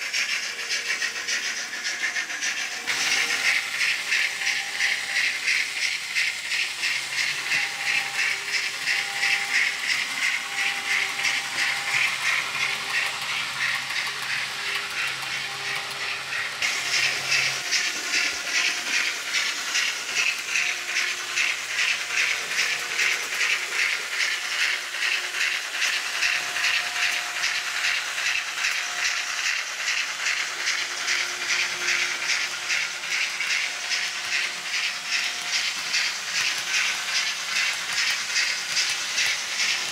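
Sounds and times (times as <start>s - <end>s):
steam locomotive chuffing: 0.0s - 39.9s.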